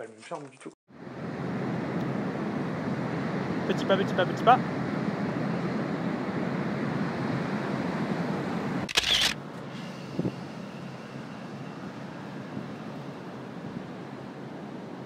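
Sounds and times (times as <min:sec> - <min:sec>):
camera shutter click: 0:08.9 - 0:09.4
wind on microphone: 0:09.8 - 0:10.7.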